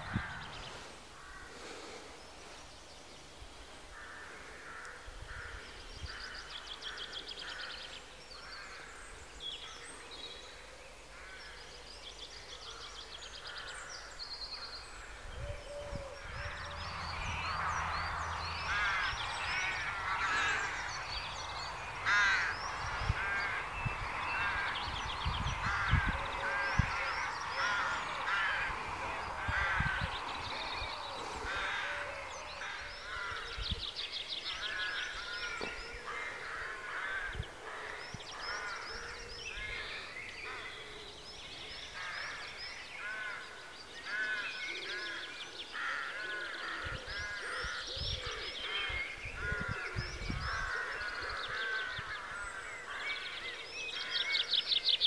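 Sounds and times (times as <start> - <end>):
crows cawing: 0.0 - 2.0, 3.9 - 9.0, 16.2 - 33.6, 34.5 - 41.0, 42.0 - 54.5.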